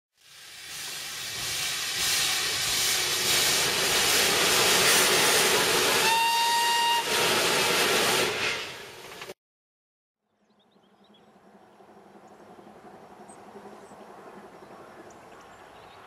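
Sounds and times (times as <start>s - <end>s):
locomotive steam hissing: 0.2s - 9.4s
steam whistle blast: 4.7s - 9.0s.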